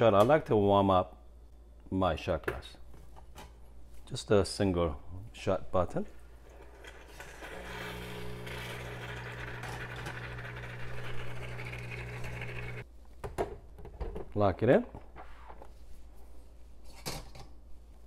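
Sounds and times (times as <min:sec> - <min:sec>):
espresso machine pump humming: 0:07.3 - 0:12.8.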